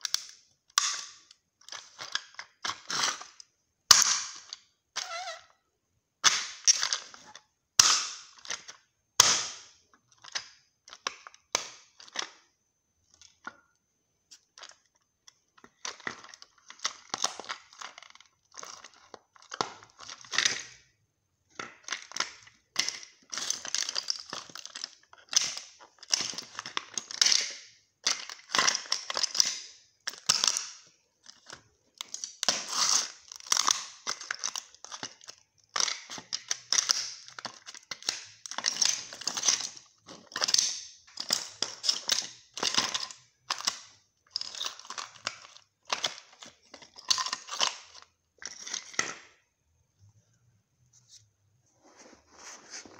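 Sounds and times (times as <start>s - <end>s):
plastic model cracking underfoot: 14.5s - 20.8s, 21.5s - 49.2s.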